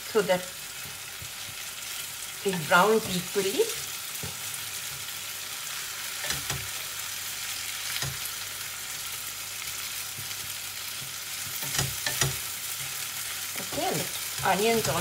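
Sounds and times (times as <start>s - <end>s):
chicken and onions sizzling in pan: 0.0s - 15.0s.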